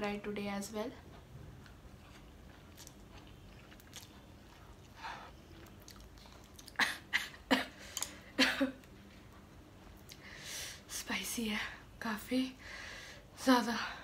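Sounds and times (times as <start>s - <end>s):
quiet chewing: 1.0s - 7.1s.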